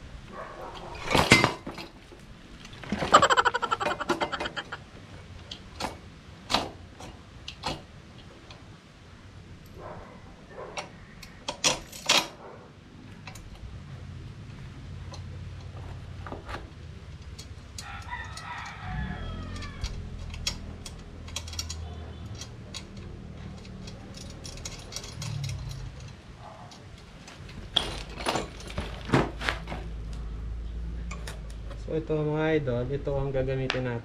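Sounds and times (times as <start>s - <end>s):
rooster crowing: 3.1s - 4.8s, 17.8s - 20.2s
steel parts clinking: 3.1s - 4.8s, 17.2s - 26.2s.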